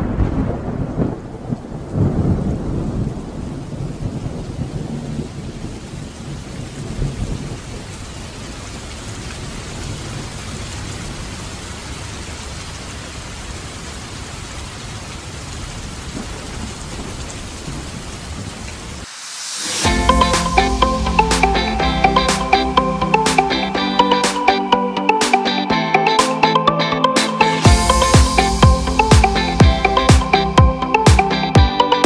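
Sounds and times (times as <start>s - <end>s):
thunder rumbling: 0.0s - 8.5s, 15.6s - 19.1s, 19.7s - 24.3s, 27.6s - 31.3s
heavy rain falling: 0.0s - 26.5s, 27.2s - 32.0s.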